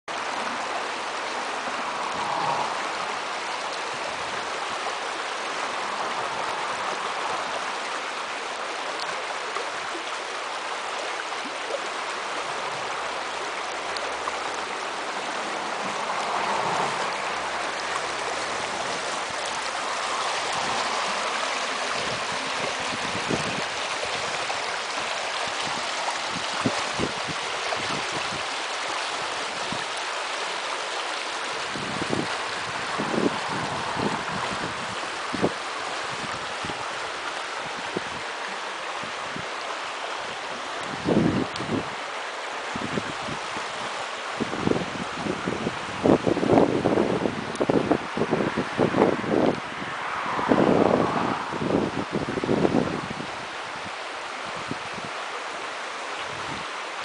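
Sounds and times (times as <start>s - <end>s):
water rushing over stones: 0.1s - 57.0s.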